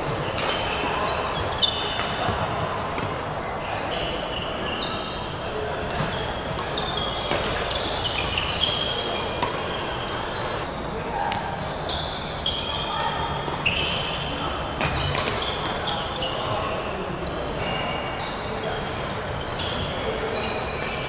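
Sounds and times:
rackets hitting shuttlecock: 0:00.3 - 0:00.9, 0:05.8 - 0:08.5, 0:09.3 - 0:09.8, 0:14.8 - 0:15.8
shoes squeaking on wooden floor: 0:05.9 - 0:10.6.

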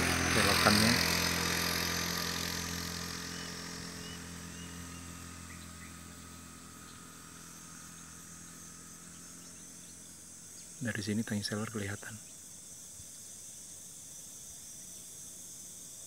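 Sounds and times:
vehicle engine noise: 0:00.0 - 0:12.2
low engine hum: 0:00.0 - 0:12.5
insect hiss: 0:00.0 - 0:16.0
faint bird chirps: 0:03.2 - 0:13.8.

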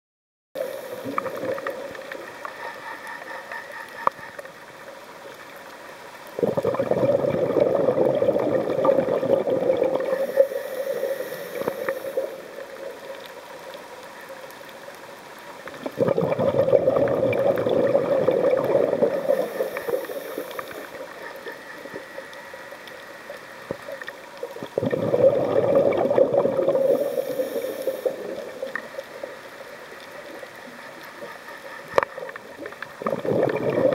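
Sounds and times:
bubbling exhaled air: 0:00.6 - 0:02.2, 0:06.4 - 0:13.2, 0:15.7 - 0:22.1, 0:23.8 - 0:29.2, 0:32.9 - 0:33.9
faint clicking: 0:00.6 - 0:06.8, 0:08.9 - 0:16.0, 0:17.4 - 0:24.9, 0:25.9 - 0:33.9.

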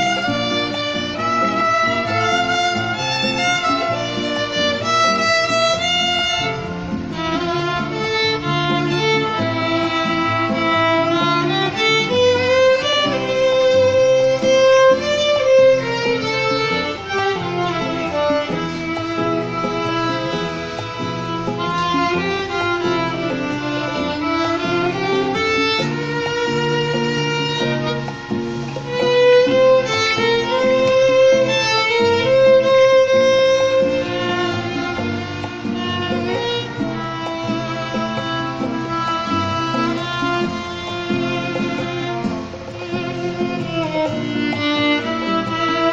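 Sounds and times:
bowed violin melody: 0:00.0 - 0:45.9
low steady chords accompaniment: 0:00.0 - 0:45.9.

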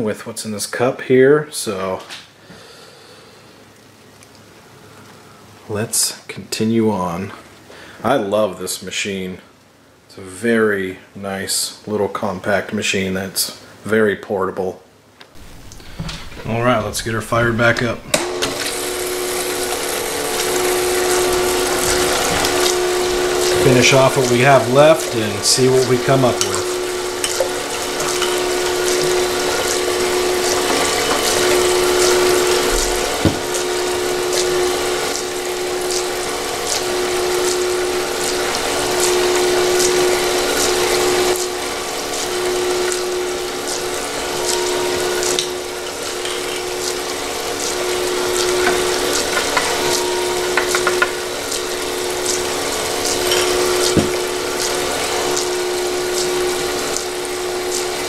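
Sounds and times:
pump and motor humming: 0:15.4 - 0:58.0
water pouring and splashing: 0:15.4 - 0:58.0.

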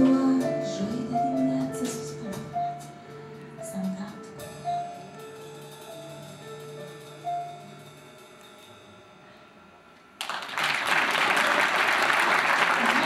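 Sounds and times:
live band soft held notes: 0:00.0 - 0:13.0
audience applause: 0:10.2 - 0:13.0.

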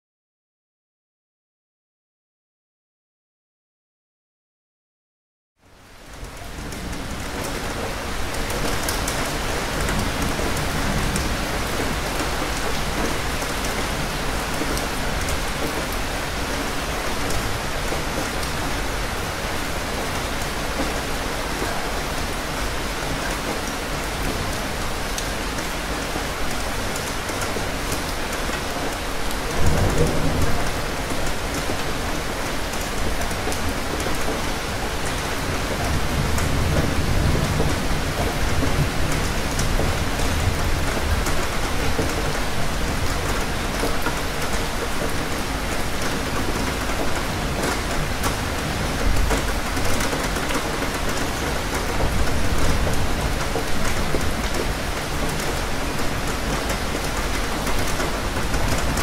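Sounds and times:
steady rain hissing: 0:05.7 - 0:59.0
low rumble of thunder: 0:29.4 - 0:32.2, 0:35.7 - 0:43.4.

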